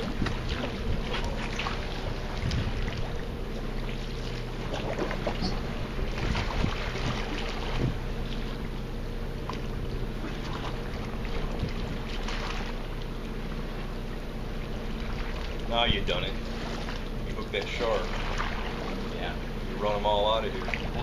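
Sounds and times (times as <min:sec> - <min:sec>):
boat motor humming: 0:00.0 - 0:21.0.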